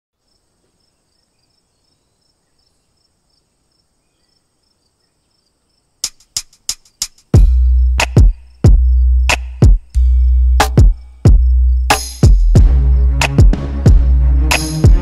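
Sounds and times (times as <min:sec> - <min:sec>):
insects chirping: 0:00.2 - 0:13.3
sharp percussive clicks: 0:06.0 - 0:07.3
drum machine beat: 0:06.0 - 0:15.0.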